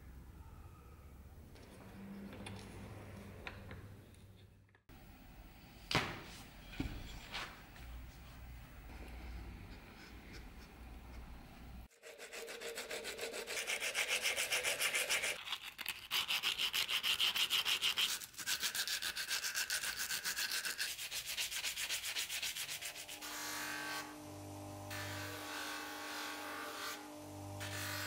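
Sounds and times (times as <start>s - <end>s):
hand file rasping on metal: 11.9s - 15.4s, 16.4s - 23.3s
bench grinder motor humming: 23.1s - 28.0s.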